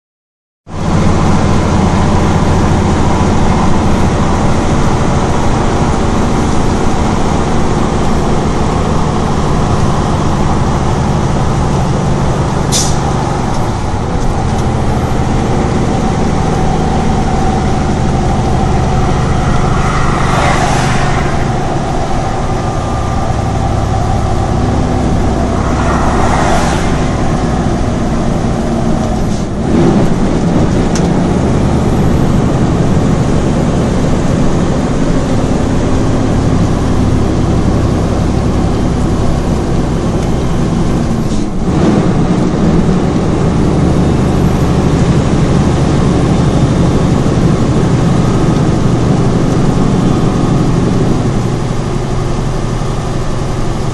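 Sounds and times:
diesel truck engine under load: 0:00.7 - 0:53.9
air brake hiss: 0:12.7 - 0:13.1.

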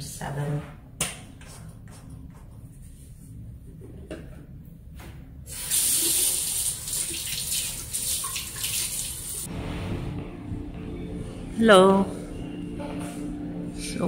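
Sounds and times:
sink tap water running and splashing: 0:05.5 - 0:09.5.

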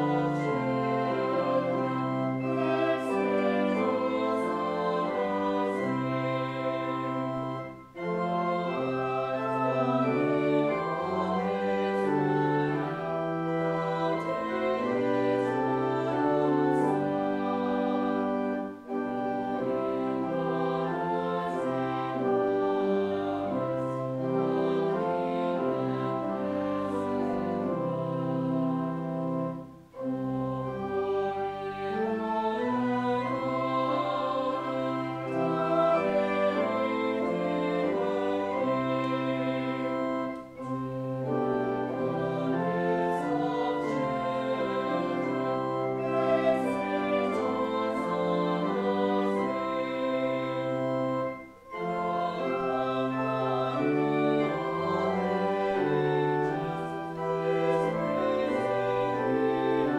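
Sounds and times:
church organ chords: 0:00.0 - 0:59.9.

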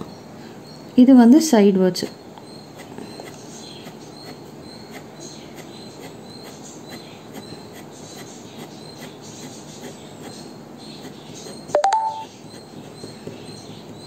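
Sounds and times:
pen scratching on paper: 0:02.7 - 0:13.8.

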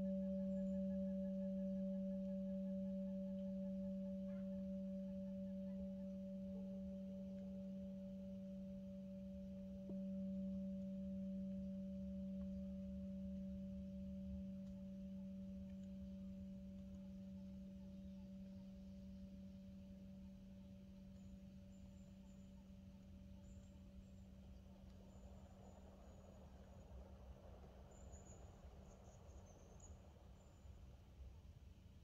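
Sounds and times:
metal singing bowl ringing: 0:00.0 - 0:18.6.

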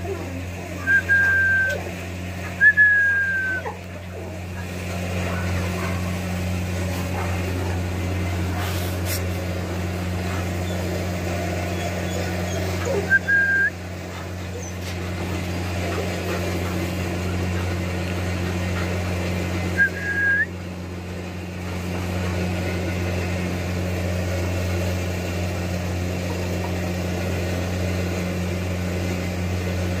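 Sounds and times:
low hum: 0:00.0 - 0:30.0
short whistles: 0:00.8 - 0:01.8, 0:02.6 - 0:03.6, 0:13.0 - 0:13.8, 0:19.8 - 0:20.6.

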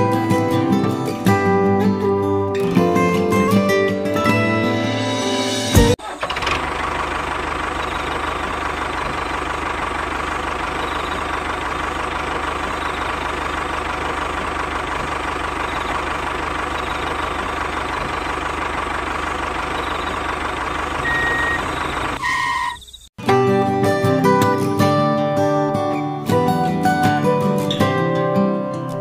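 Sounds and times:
small motor whining: 0:19.6 - 0:23.0.

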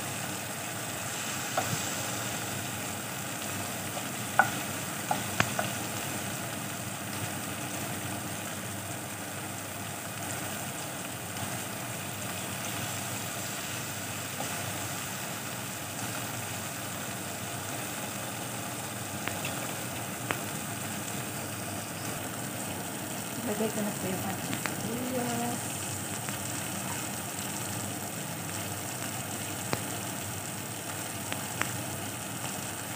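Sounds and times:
onions and tomatoes sizzling: 0:00.0 - 0:32.9
wooden spatula clicking on pan: 0:04.3 - 0:05.8.

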